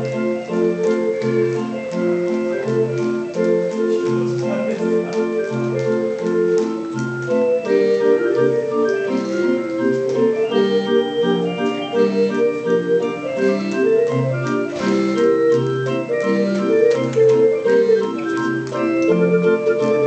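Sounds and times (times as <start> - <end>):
barrel organ playing a tune: 0.0 - 20.0.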